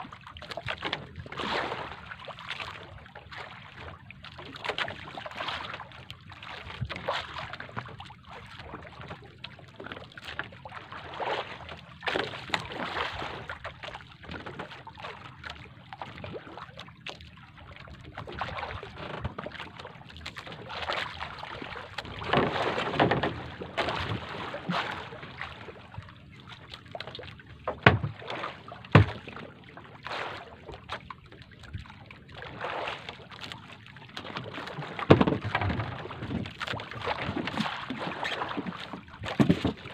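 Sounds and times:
water sloshing against wooden boat: 0.0 - 39.9
sharp knocks: 28.9 - 29.2.

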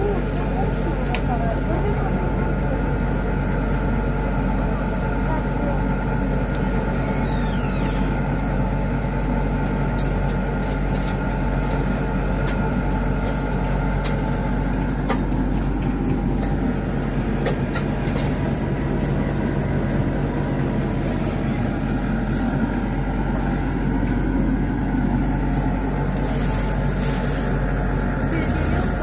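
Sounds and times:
machine drone with low hum: 0.0 - 29.0
falling squeak: 7.0 - 8.2.

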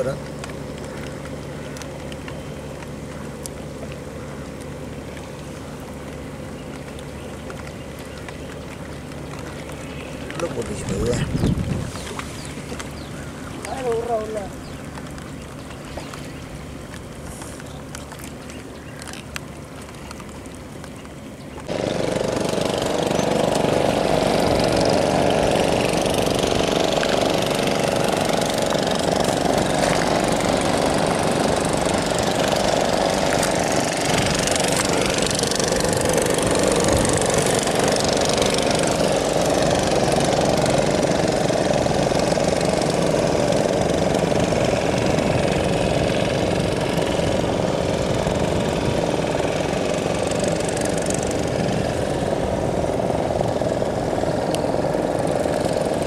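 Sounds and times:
quiet outdoor ambience: 0.0 - 56.0
engine running loudly: 21.6 - 56.0.

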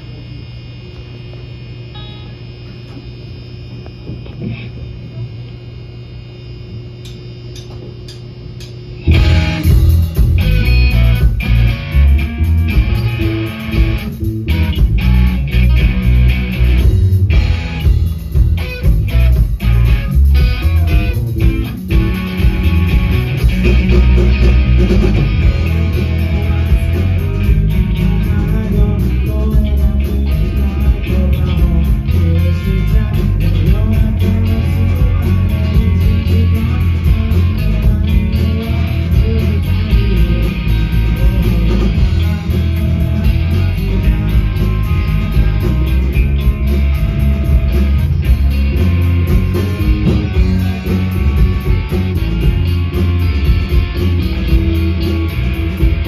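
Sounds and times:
bass: 0.0 - 56.0
drum kit beat: 7.1 - 56.0
electric guitars: 8.6 - 56.0
person singing: 19.6 - 56.0.

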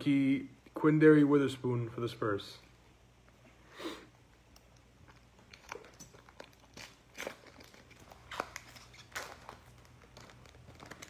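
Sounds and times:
foil wrapper crinkling: 5.5 - 11.0.

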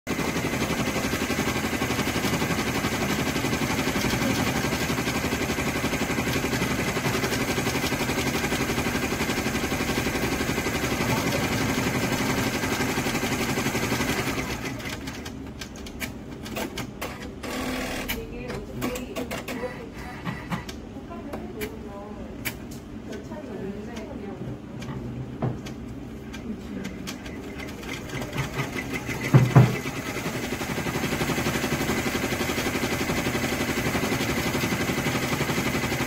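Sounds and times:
embroidery machine stitching: 0.1 - 15.4, 16.4 - 18.2, 26.9 - 36.0.

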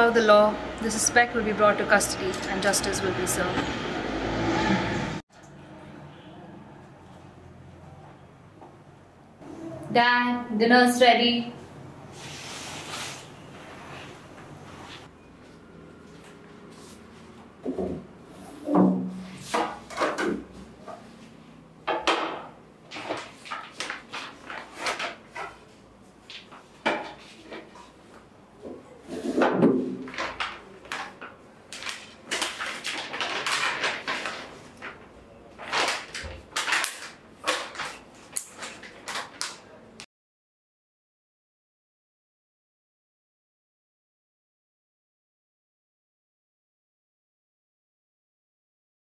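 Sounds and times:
paper bag rustling: 22.9 - 25.5, 30.0 - 39.5.

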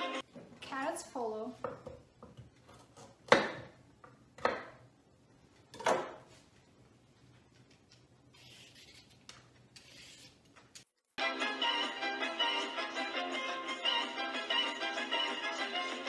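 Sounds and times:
peeler scraping a carrot: 8.3 - 10.5.

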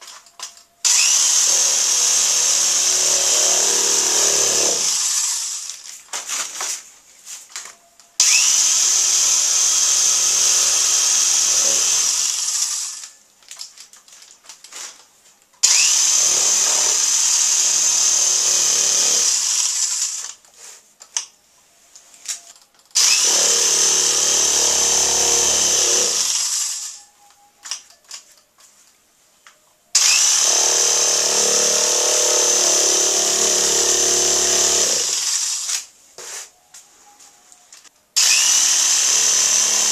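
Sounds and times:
electric drill whining: 0.8 - 5.9, 8.2 - 13.2, 15.6 - 20.4, 23.0 - 27.1, 30.0 - 35.9, 38.2 - 39.9.

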